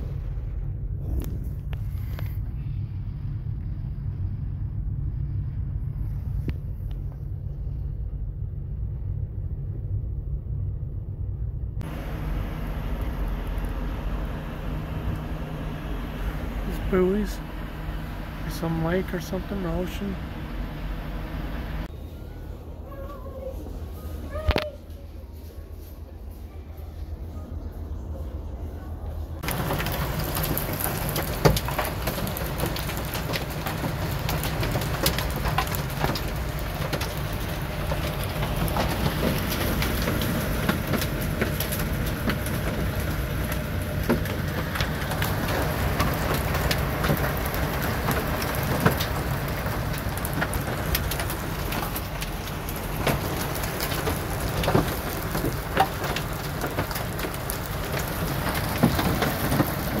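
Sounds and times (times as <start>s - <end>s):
rain on vehicle roof: 11.8s - 21.9s, 29.4s - 60.0s
hail hitting windshield: 29.4s - 60.0s.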